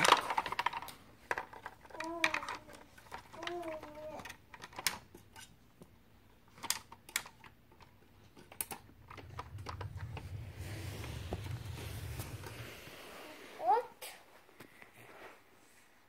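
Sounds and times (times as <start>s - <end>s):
plastic toy clicks: 0.0s - 5.1s, 6.5s - 9.4s
low rumble with hiss: 7.5s - 14.6s.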